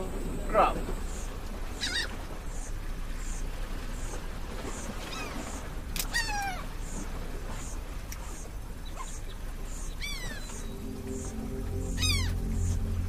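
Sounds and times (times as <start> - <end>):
birds calling: 0.0 - 13.0
coastal ambience hiss: 0.0 - 13.0
faint high chirp: 8.3 - 13.0.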